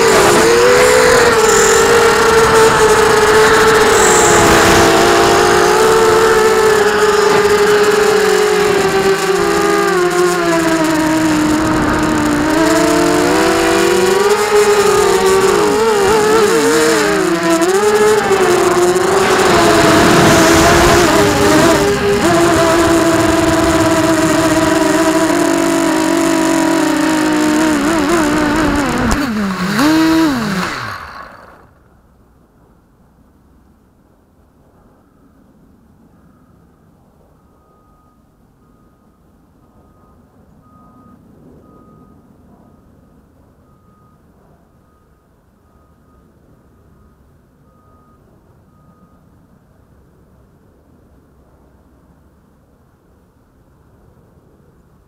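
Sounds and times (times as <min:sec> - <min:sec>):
drone motors whining: 0:00.0 - 0:31.8.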